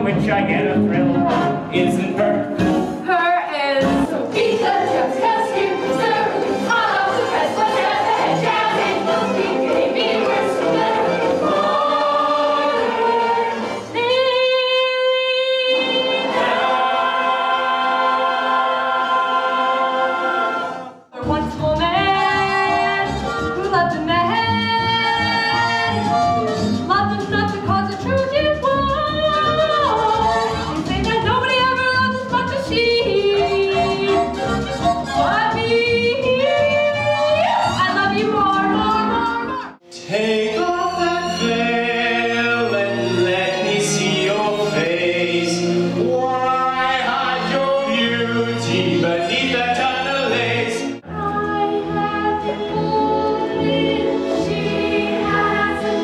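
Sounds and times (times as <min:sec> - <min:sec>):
ensemble singing in chorus: 0:04.1 - 0:21.2, 0:40.0 - 0:56.0.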